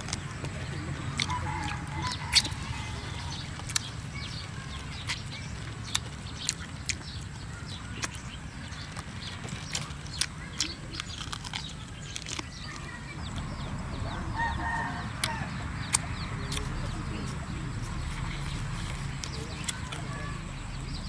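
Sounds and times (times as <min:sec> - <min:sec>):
person eating and chewing: 0:00.0 - 0:13.5
chickens clucking: 0:00.0 - 0:21.0
small birds chirping: 0:00.0 - 0:21.0
chicken cackle: 0:00.7 - 0:03.8, 0:14.0 - 0:16.9.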